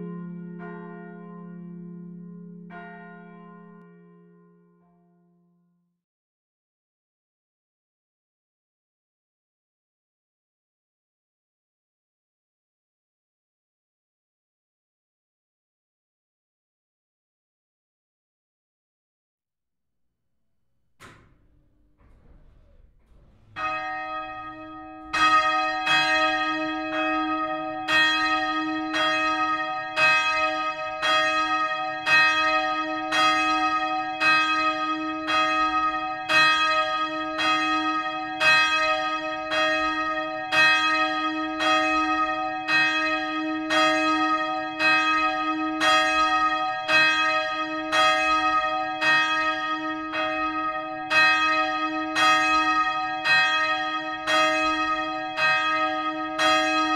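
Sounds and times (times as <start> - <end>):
church bells ringing: 0.0 - 5.2, 21.0 - 56.9.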